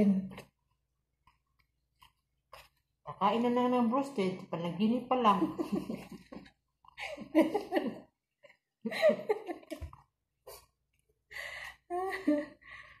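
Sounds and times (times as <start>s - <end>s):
woman laughing: 5.3s - 8.1s, 8.8s - 9.9s, 11.8s - 12.6s.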